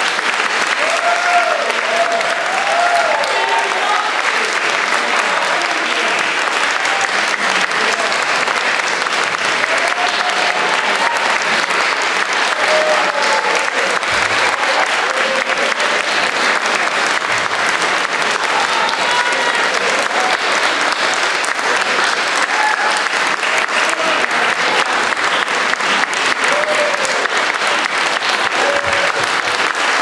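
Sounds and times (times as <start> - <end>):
crowd applauding: 0.0 - 30.0.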